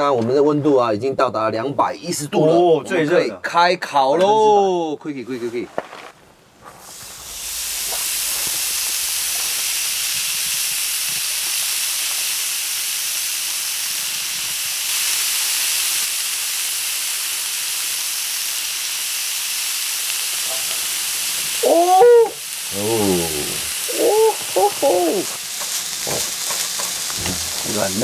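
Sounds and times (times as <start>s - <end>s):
meat sizzling on a grill: 6.7s - 28.0s.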